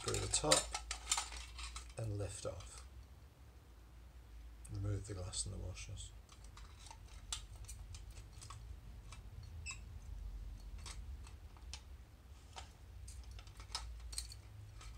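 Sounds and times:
clicks and clinks of lamp parts: 0.0 - 2.0, 12.5 - 14.9.

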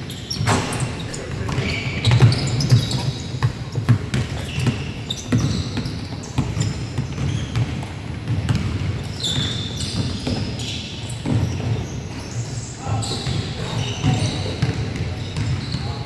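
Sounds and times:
sneakers squeaking on floor: 0.0 - 16.0
basketball bouncing on wooden floor: 0.3 - 10.5.

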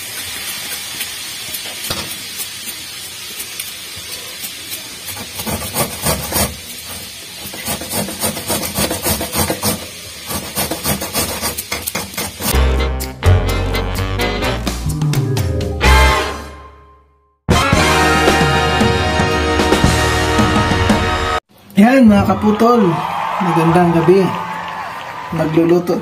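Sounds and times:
papaya grated on metal grater: 5.1 - 12.6.

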